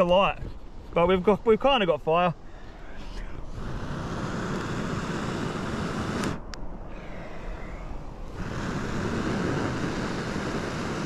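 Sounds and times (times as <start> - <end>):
person blowing hard on tinder: 3.5 - 11.0.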